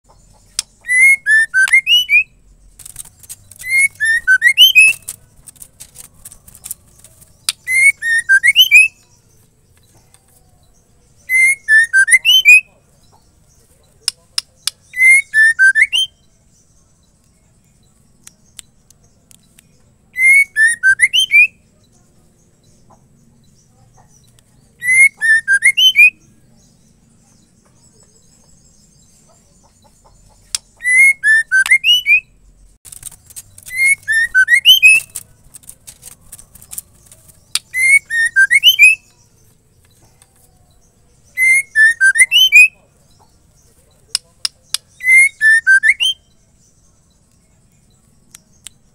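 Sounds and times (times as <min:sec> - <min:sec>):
bird whistling call: 0:00.8 - 0:02.4, 0:03.6 - 0:05.0, 0:07.6 - 0:09.0, 0:11.3 - 0:12.7, 0:15.0 - 0:16.2, 0:20.2 - 0:21.6, 0:24.8 - 0:26.2, 0:30.8 - 0:32.3, 0:33.7 - 0:35.1, 0:37.6 - 0:39.0, 0:41.4 - 0:42.8, 0:45.0 - 0:46.2
sharp clicks: 0:02.7 - 0:07.8, 0:32.9 - 0:37.8.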